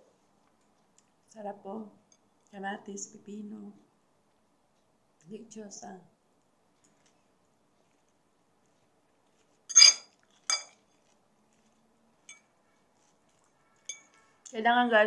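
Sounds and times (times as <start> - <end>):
metal fork clinking on a plate: 9.7 - 10.8, 13.8 - 14.3.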